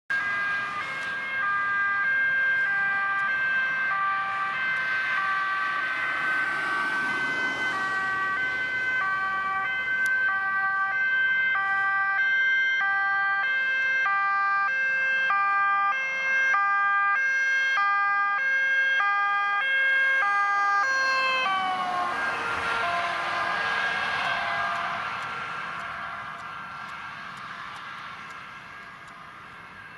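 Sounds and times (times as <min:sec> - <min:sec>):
two-tone police siren: 0:00.1 - 0:29.9.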